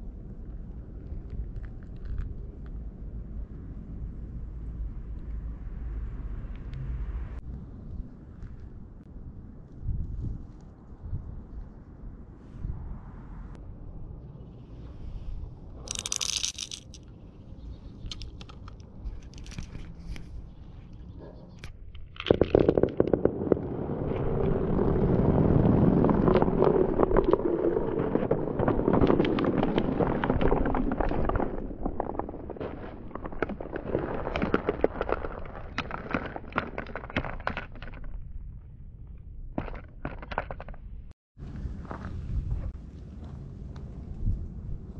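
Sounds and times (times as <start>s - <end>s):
marbles clattering down track: 15.9s - 17.0s, 22.0s - 23.6s.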